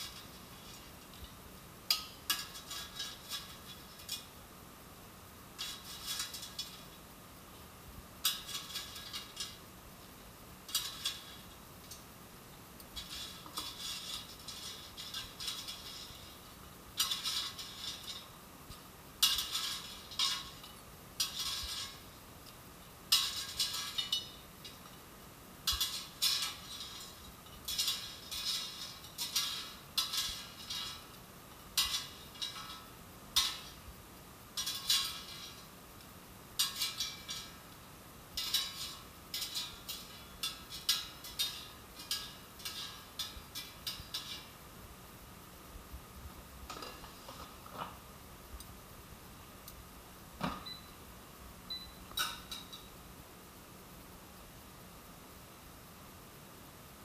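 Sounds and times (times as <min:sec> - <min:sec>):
metal tongs clinking on basket: 0:25.7 - 0:31.1, 0:31.7 - 0:33.8, 0:36.6 - 0:37.6, 0:38.4 - 0:44.5.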